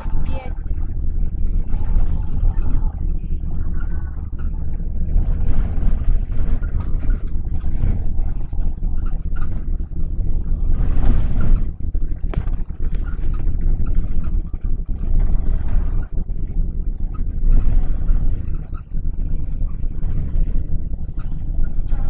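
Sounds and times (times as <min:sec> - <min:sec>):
road and engine rumble: 0:00.0 - 0:22.0
wind noise: 0:00.0 - 0:22.0.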